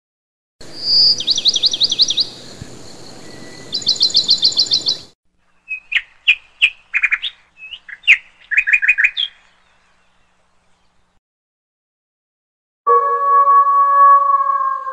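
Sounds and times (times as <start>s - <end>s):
birds chirping: 0.6s - 11.2s.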